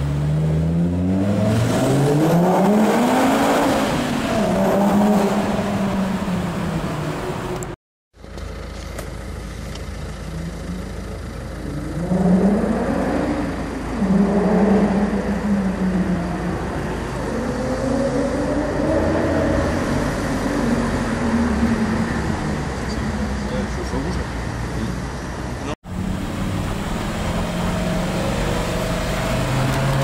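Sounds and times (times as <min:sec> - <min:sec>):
car engine revving: 0:00.0 - 0:07.8, 0:09.8 - 0:30.0.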